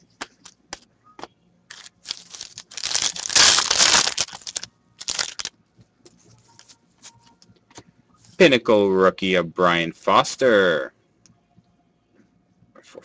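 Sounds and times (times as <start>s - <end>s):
foil card pack tearing and crinkling: 1.7s - 5.5s.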